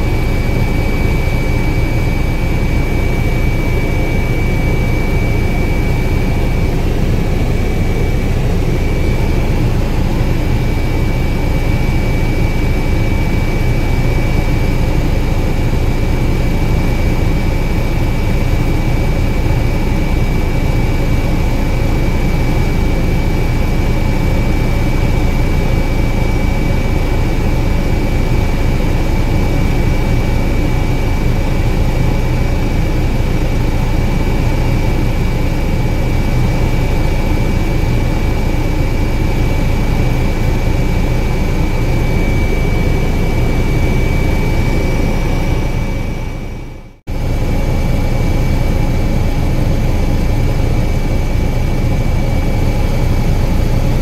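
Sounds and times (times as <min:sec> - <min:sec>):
helicopter cabin drone: 0:00.0 - 0:54.0.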